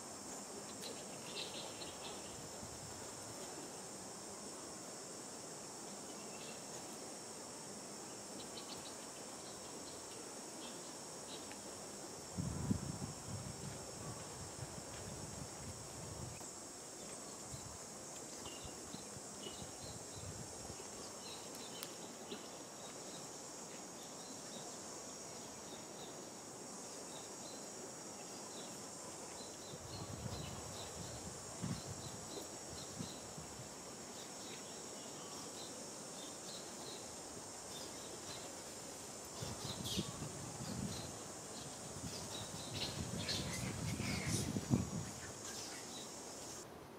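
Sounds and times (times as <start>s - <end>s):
insects droning: 0.0s - 46.9s.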